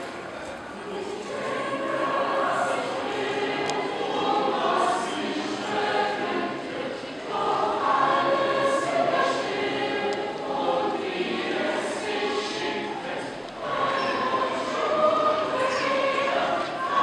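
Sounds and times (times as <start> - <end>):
choir singing held notes: 0.7 - 17.0.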